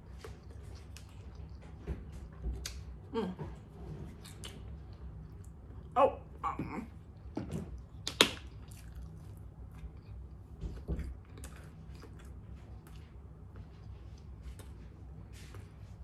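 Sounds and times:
person chewing: 0.0 - 3.0, 4.1 - 6.0, 7.1 - 15.0.

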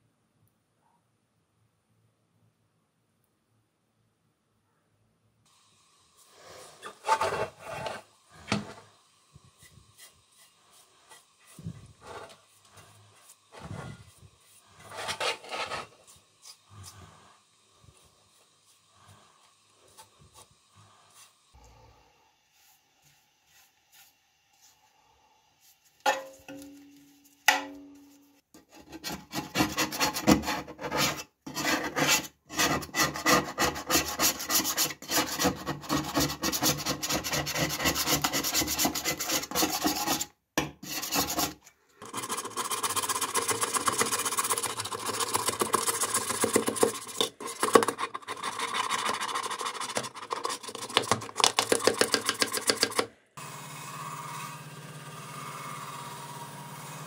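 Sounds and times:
metal scraper rasping paint: 14.8 - 16.6, 28.6 - 53.1.

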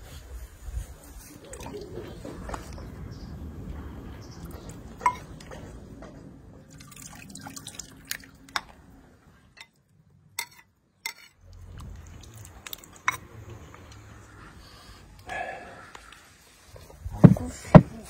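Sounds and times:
low rumble: 1.8 - 6.8
metal ladle clinking: 5.0 - 5.3, 10.4 - 11.4
broth dripping and splashing: 6.6 - 8.9, 11.5 - 13.3.

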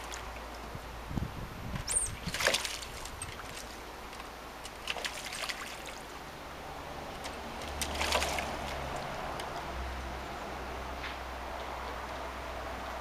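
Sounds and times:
bird splashing in water: 1.8 - 6.2, 7.0 - 9.8.

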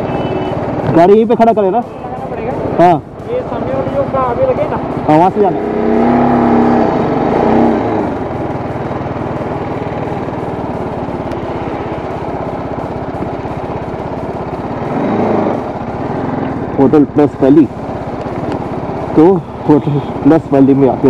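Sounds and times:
motorcycle engine puttering: 0.0 - 21.0.

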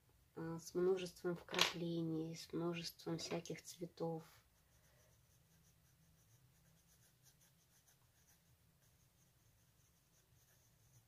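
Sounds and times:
pencil scratching on paper: 4.2 - 11.0.

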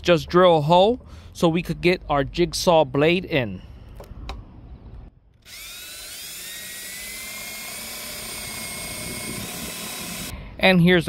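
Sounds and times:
cordless drill boring through wood: 5.4 - 10.3.

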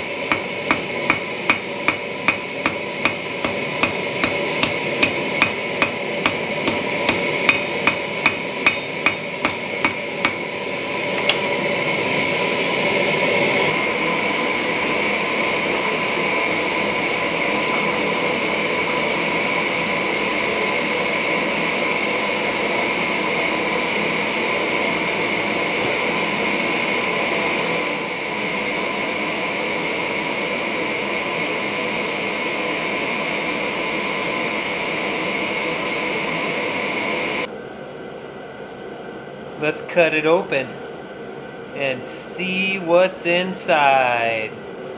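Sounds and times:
hammer tapping on anvil: 0.3 - 10.4.

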